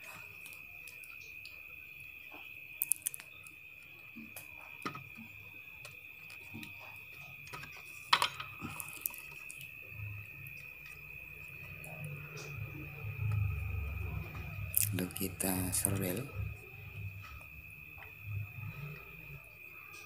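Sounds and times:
steady high-pitched tone: 0:04.0 - 0:20.0.

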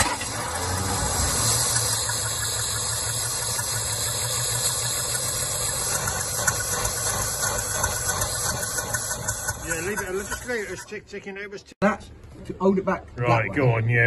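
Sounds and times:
car engine running: 0:00.0 - 0:11.0.

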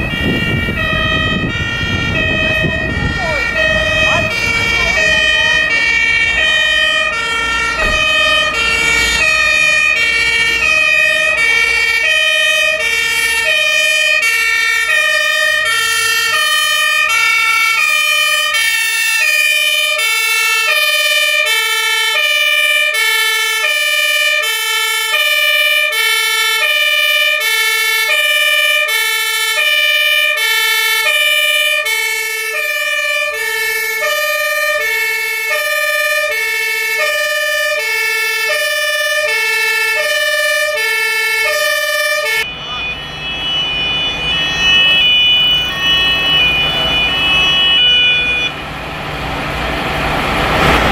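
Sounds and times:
truck engine rumbling: 0:00.0 - 0:50.9
two-tone fire engine siren: 0:00.0 - 0:50.9
steady high tone: 0:41.5 - 0:48.9.

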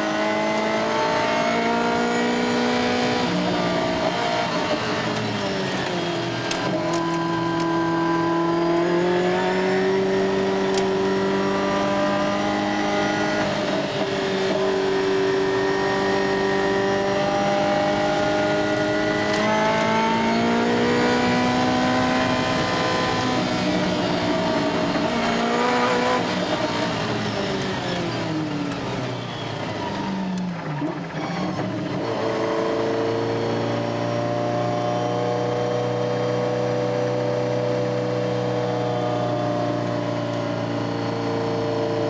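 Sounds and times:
car engine accelerating: 0:00.0 - 0:42.0.

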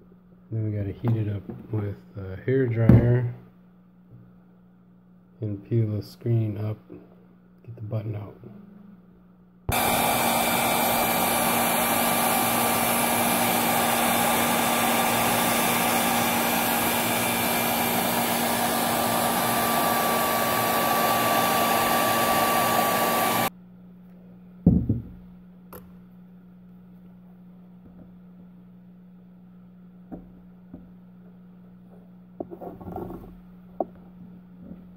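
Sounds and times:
hair dryer blowing: 0:09.7 - 0:23.5.

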